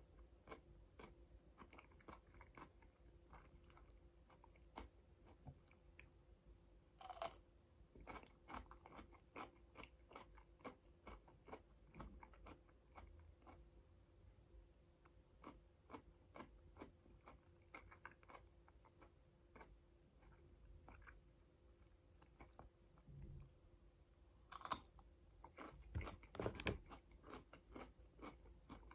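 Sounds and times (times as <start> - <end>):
crunching bite: 7.0 - 7.4, 24.5 - 28.9.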